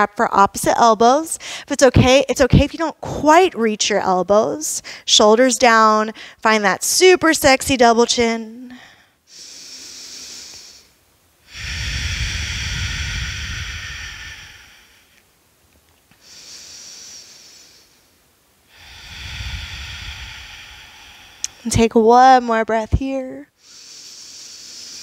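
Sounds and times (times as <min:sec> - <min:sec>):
woman breathing slowly: 0:01.4 - 0:01.7, 0:04.8 - 0:05.1, 0:06.2 - 0:06.4, 0:08.6 - 0:15.3, 0:16.1 - 0:21.8, 0:23.5 - 0:25.0.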